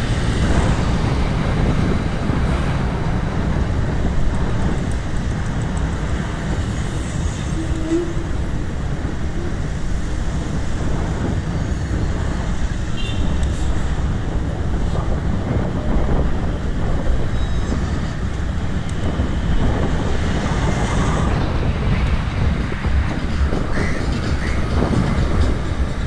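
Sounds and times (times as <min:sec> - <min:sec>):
road traffic: 0:00.0 - 0:26.0
wind on microphone: 0:00.0 - 0:26.0.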